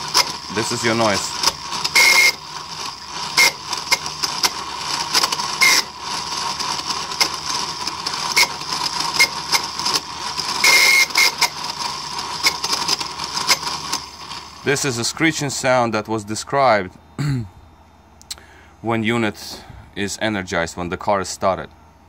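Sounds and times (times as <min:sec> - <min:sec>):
rapid irregular clicking: 0:00.0 - 0:14.8
throttle actuator whining: 0:00.0 - 0:19.9
short high squeals: 0:01.9 - 0:03.7, 0:10.6 - 0:11.6.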